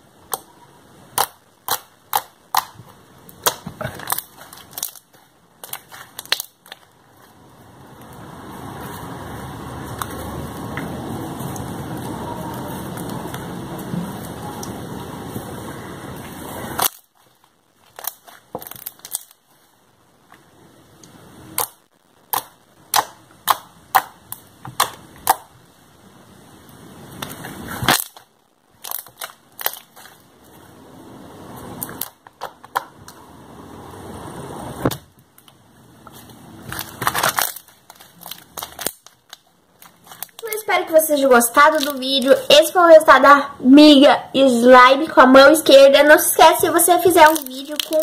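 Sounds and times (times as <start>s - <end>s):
slime popping and snapping: 1.1s - 6.9s, 16.8s - 19.4s, 21.5s - 25.5s, 27.2s - 30.2s, 36.7s - 40.6s, 47.1s - 48.0s
steady rushing noise: 7.0s - 16.8s.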